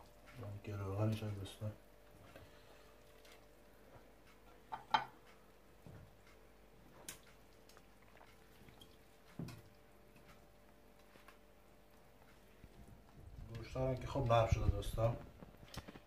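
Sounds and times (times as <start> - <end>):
light dripping: 0.0 - 15.9.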